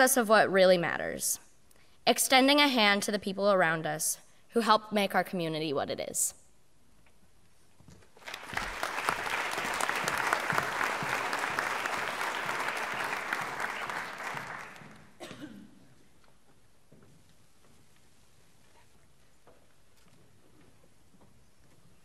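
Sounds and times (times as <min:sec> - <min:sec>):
audience applauding: 0:08.2 - 0:15.1.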